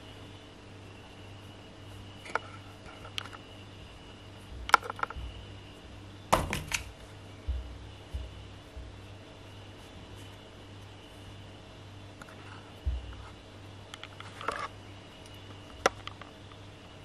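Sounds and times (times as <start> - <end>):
steady low hum: 0.0 - 17.0
low thumps: 4.5 - 9.3, 12.8 - 13.4.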